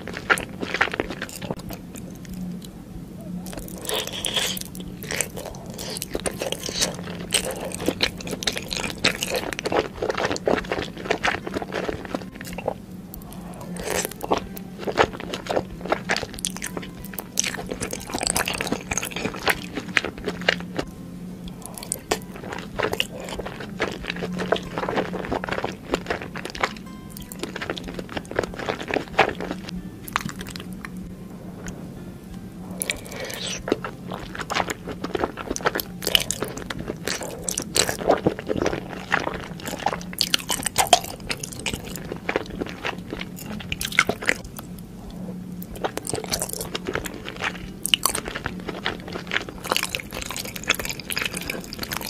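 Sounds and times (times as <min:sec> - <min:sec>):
background music: 0:00.0 - 0:52.0
wet chewing and lip smacks: 0:03.4 - 0:16.8, 0:32.8 - 0:44.7, 0:45.6 - 0:52.0.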